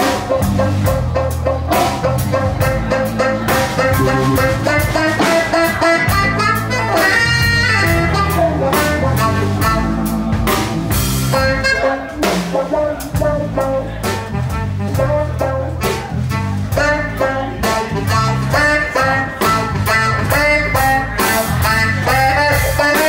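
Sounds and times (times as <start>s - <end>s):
electric guitars: 0.0s - 12.5s
drum kit beat: 0.0s - 23.0s
saxophone melody: 2.9s - 10.2s.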